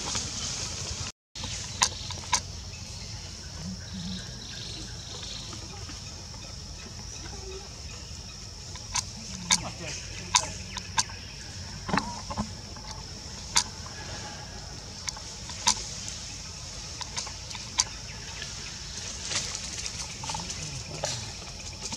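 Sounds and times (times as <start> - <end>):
steady high drone: 2.5 - 19.8.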